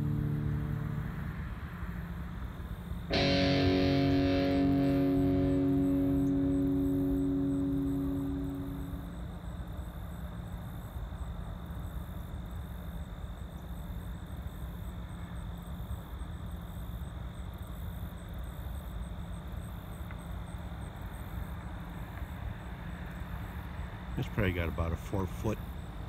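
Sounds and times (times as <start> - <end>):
low background rumble: 0.0 - 1.7, 3.1 - 9.5
faint high-pitched whine: 0.0 - 26.0.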